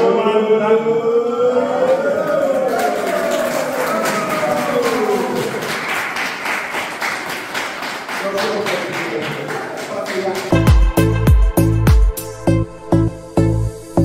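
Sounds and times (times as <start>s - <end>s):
group clapping: 1.8s - 11.4s.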